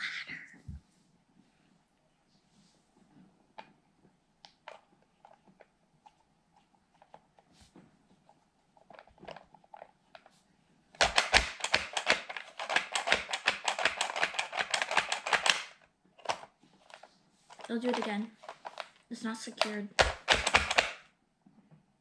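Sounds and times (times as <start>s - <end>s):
plastic toy press clicking: 11.0s - 16.5s, 17.6s - 21.0s.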